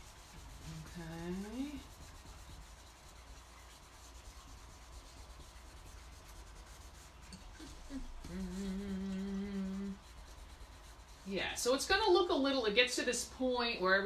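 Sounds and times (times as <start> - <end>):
fingertips rubbing paper: 0.0 - 11.6
person humming: 7.6 - 10.0.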